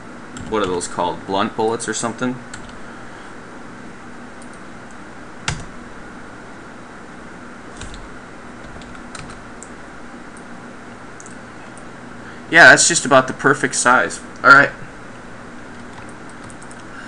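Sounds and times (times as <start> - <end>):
faint computer hum: 0.0 - 17.0.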